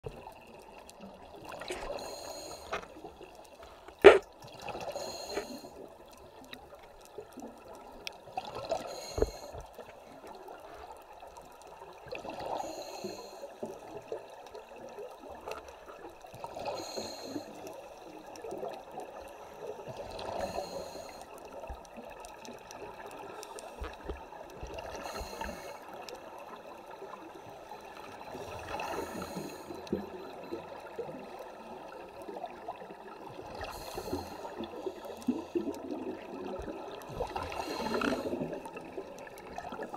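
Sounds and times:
exhaled bubbles underwater: 0.0 - 39.9
diver breathing through regulator: 1.7 - 3.0, 3.6 - 5.8, 8.6 - 9.8, 12.4 - 13.7, 16.6 - 17.7, 19.5 - 21.4, 24.9 - 26.0, 28.2 - 30.0, 33.6 - 36.0, 37.1 - 38.8.

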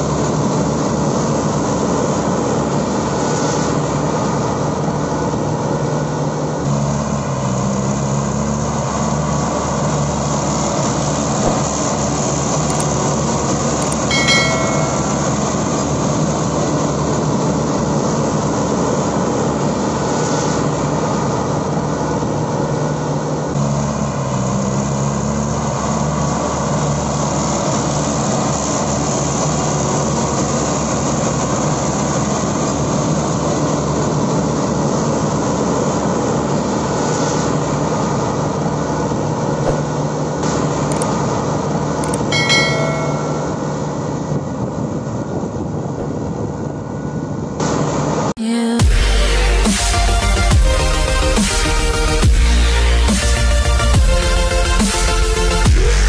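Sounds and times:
tractor engine drone: 0.0 - 56.0
short chime: 13.9 - 15.8, 42.3 - 44.0.

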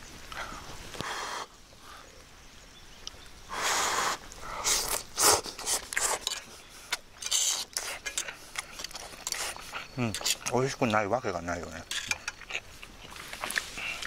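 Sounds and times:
fork scraping skillet: 7.2 - 10.8
breathy noises: 12.2 - 14.0.

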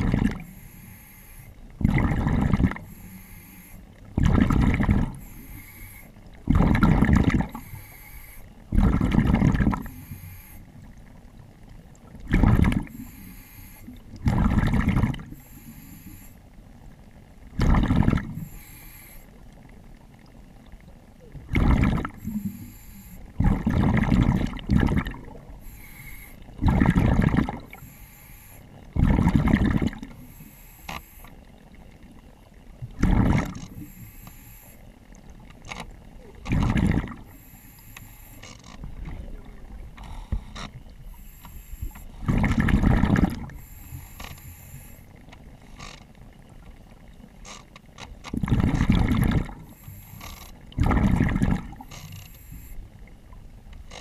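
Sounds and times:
exhaled bubbles rushing: 0.0 - 0.5, 1.8 - 2.9, 4.2 - 5.3, 6.4 - 7.7, 8.7 - 10.0, 12.1 - 13.1, 13.9 - 15.5, 17.5 - 18.5, 21.2 - 22.7, 23.4 - 25.6, 26.6 - 27.8, 28.9 - 30.2, 32.8 - 33.9, 36.3 - 37.4, 42.1 - 43.6, 48.4 - 49.8, 50.7 - 51.9
diver breathing through regulator: 0.4 - 1.6, 2.4 - 3.9, 5.0 - 6.7, 7.4 - 9.0, 9.8 - 10.8, 12.8 - 14.4, 15.3 - 16.4, 18.3 - 19.4, 21.6 - 23.7, 25.6 - 26.8, 27.6 - 29.2, 30.2 - 31.4, 33.1 - 34.9, 37.2 - 38.8, 40.0 - 42.5, 43.1 - 45.1, 49.4 - 52.9.

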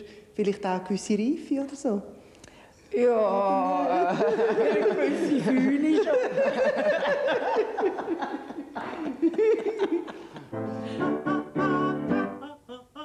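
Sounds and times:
woman laughing: 3.8 - 10.5.

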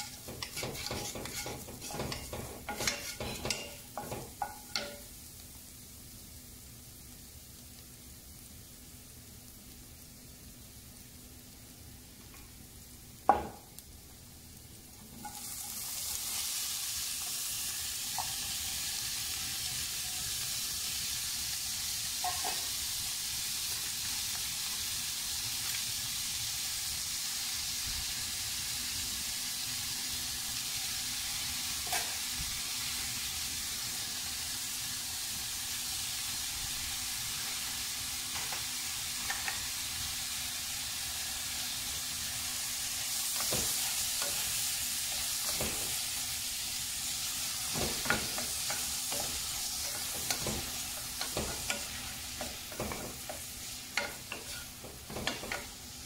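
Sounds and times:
wooden spoon knocking and scraping pan: 0.0 - 5.0, 43.4 - 44.5, 45.2 - 46.0, 47.6 - 55.7
tomatoes and onion sizzling in a pan: 0.0 - 56.0.

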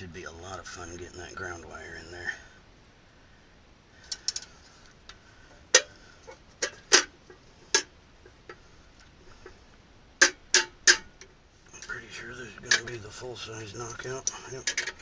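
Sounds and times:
metal parts and tools clicking: 13.9 - 15.0.

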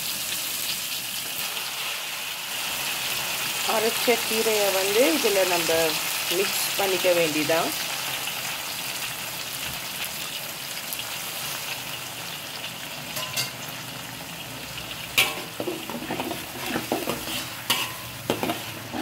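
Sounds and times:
food sizzling in a wok: 0.0 - 19.0
spatula scraping a wok: 15.2 - 19.0.

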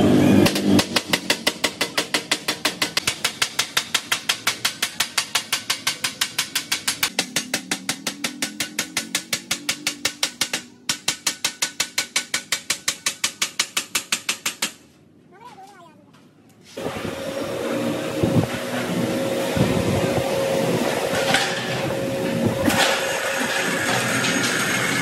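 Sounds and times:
hammer striking steel sheet: 0.4 - 14.8.

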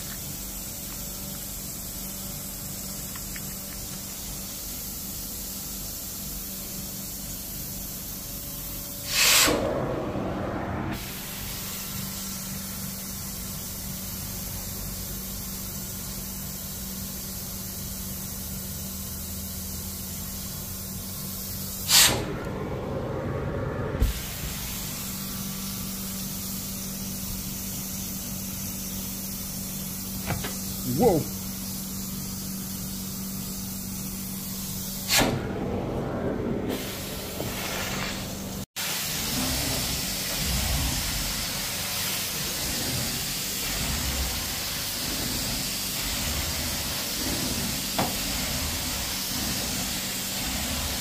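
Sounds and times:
steady hiss: 0.0 - 9.7, 11.0 - 22.6, 24.0 - 35.2, 36.8 - 51.0
rushes of spray: 36.7 - 51.0.

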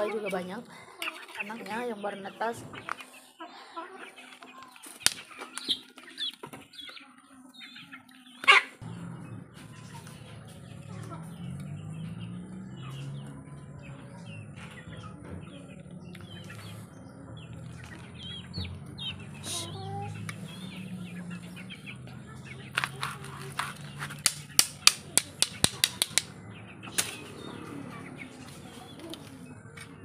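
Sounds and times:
chicks peeping: 0.0 - 30.0
sharp clicks: 24.2 - 26.3.

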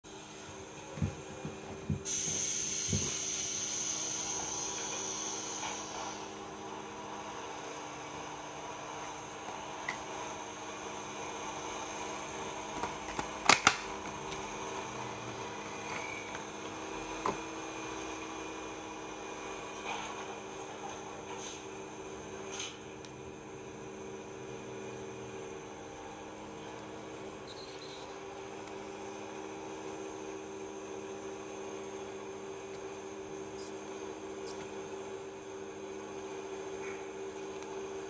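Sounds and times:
sharp plastic clicks: 12.8 - 13.9.

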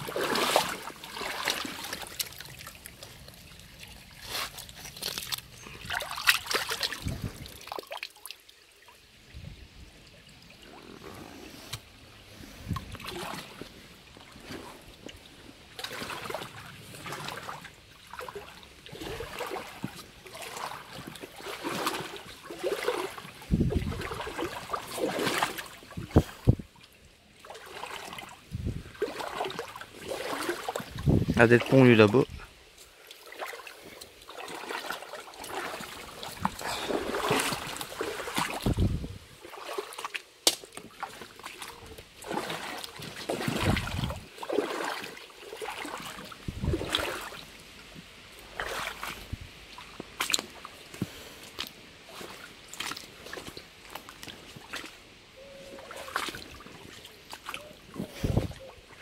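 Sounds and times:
footsteps wading through water: 0.0 - 8.5, 10.4 - 59.0
water trickling: 0.0 - 40.2.

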